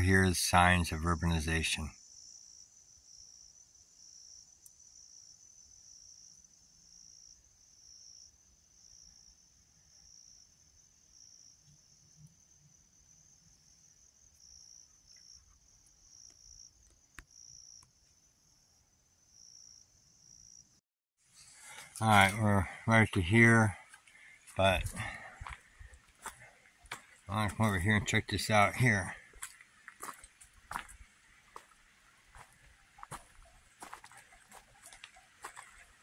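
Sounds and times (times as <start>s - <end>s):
insects trilling: 0.0s - 36.0s
faint click: 4.6s - 4.8s.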